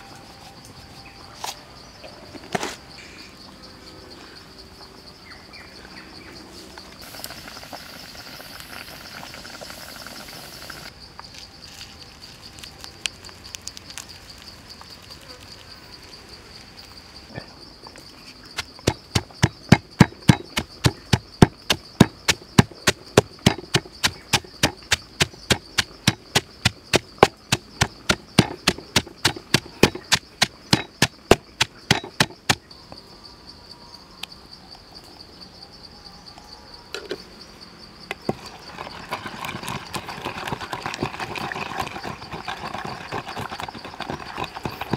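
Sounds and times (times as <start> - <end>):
insects droning: 0.0 - 44.9
wooden pestle pounding in mortar: 18.6 - 32.6.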